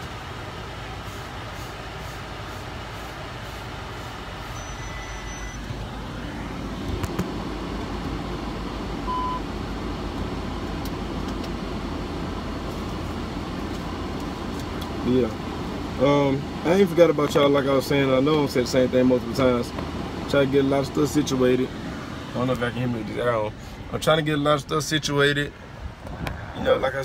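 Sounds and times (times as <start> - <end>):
road and engine noise in car: 0.0 - 27.0
short high beep: 4.5 - 5.7, 9.1 - 9.4.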